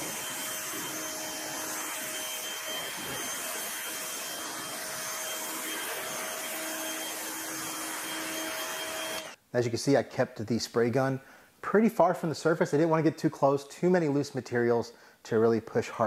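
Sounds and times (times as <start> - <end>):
water jet hissing on metal: 0.0 - 5.0.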